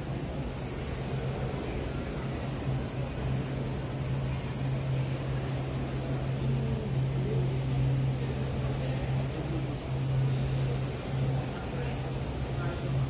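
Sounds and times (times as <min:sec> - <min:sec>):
faint distant voices: 0:00.0 - 0:13.0
low mechanical hum: 0:00.0 - 0:13.0.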